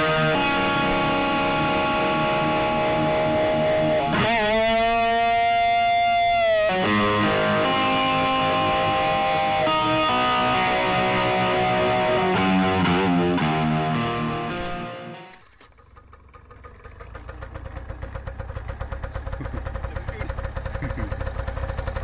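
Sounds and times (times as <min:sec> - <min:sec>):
electric guitar chords: 0:00.0 - 0:15.4.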